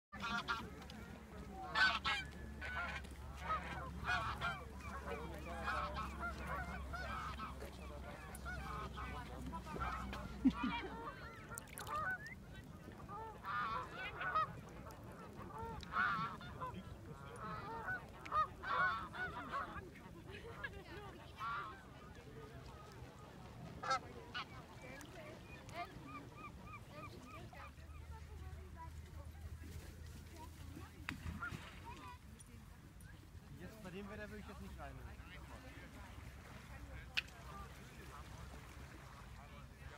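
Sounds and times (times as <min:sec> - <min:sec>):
geese honking: 0:00.2 - 0:00.8, 0:01.6 - 0:12.4, 0:13.1 - 0:19.8, 0:22.7 - 0:27.8.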